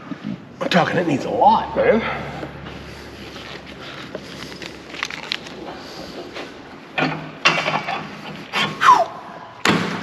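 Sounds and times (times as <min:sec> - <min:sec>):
plastic bags rustling: 0:03.1 - 0:06.8.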